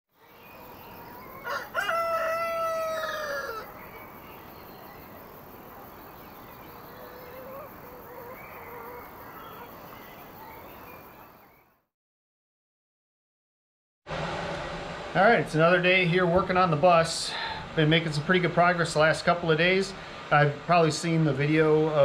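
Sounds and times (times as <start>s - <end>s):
rooster crowing: 0.7s - 4.0s, 6.9s - 10.1s.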